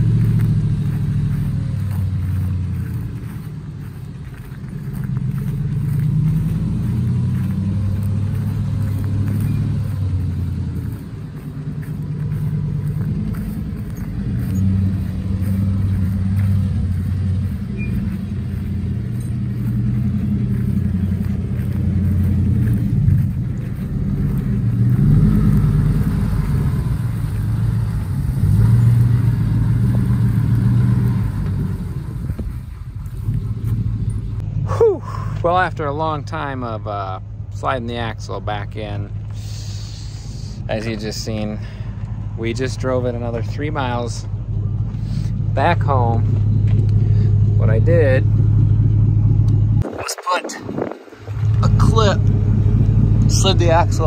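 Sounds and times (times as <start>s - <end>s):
truck engine under load: 0.0s - 54.0s.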